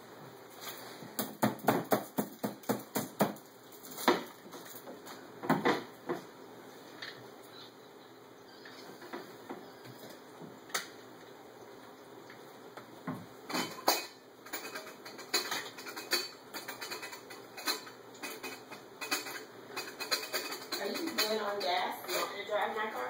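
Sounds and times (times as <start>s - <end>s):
plates and utensils clattering: 13.5s - 22.5s.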